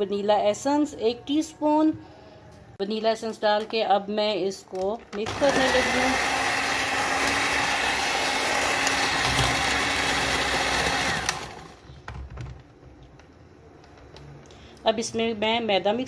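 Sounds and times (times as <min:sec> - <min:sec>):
motor winding down: 0:05.3 - 0:11.6
electric hand mixer whining: 0:05.3 - 0:11.8.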